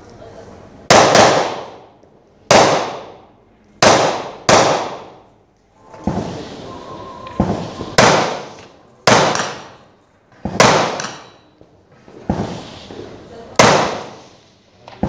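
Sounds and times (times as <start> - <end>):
rifle shots echoing: 0.9 - 1.9, 2.5 - 3.2, 3.8 - 5.3, 7.4 - 9.8, 10.5 - 11.4, 13.6 - 14.4
faint distant gunshots: 3.8 - 5.2, 7.4 - 9.8, 10.5 - 11.3, 13.6 - 14.4.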